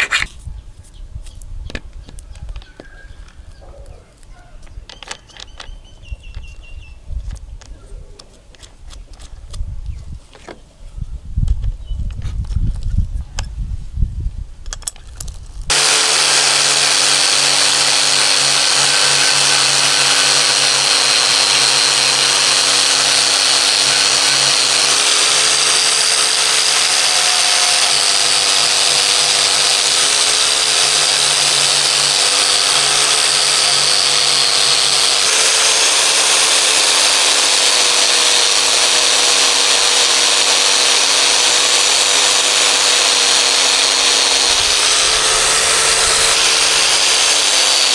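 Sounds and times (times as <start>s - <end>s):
angle grinder buffing metal: 0.0s - 0.3s, 15.7s - 47.9s.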